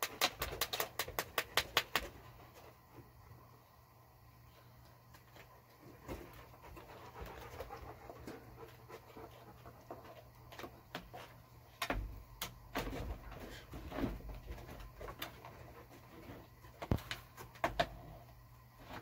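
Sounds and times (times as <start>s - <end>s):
dog panting and sniffing: 5.9s - 10.5s.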